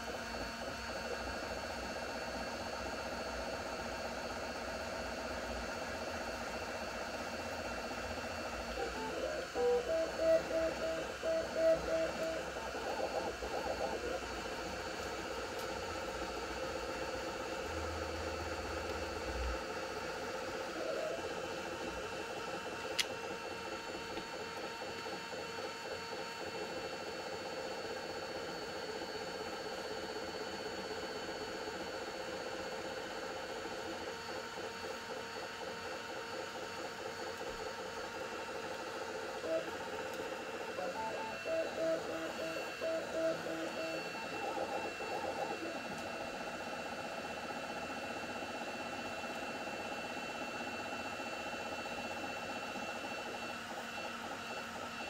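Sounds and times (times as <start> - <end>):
steady high whine: 5.9 - 26.1, 38.4 - 55.0
stepper motors singing: 8.7 - 14.3, 40.8 - 46.0.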